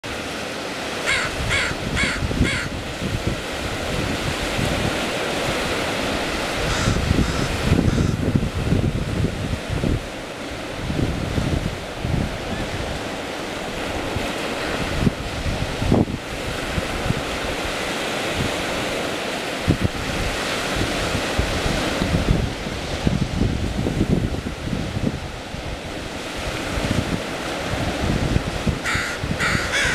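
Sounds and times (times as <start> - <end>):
surf: 0.0 - 29.9
wind: 0.0 - 29.9
crow cawing: 1.0 - 2.8, 6.7 - 8.2, 28.8 - 29.9.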